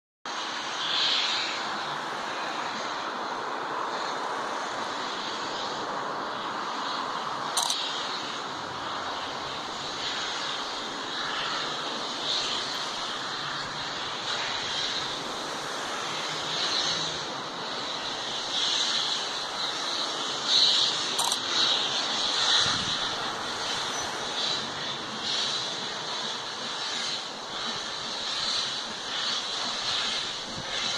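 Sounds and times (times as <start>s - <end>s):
steam locomotive roar: 0.3s - 30.9s
sharp click: 7.6s - 7.8s, 21.2s - 21.4s.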